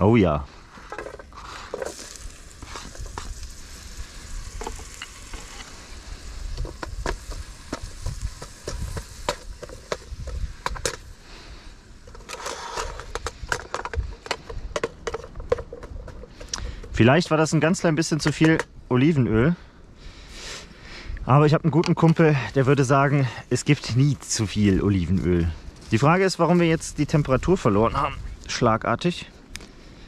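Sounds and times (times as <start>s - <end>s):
onion sizzling in oil: 1.4s - 13.2s
wooden spatula scraping a pan: 4.6s - 11.0s, 12.1s - 16.9s.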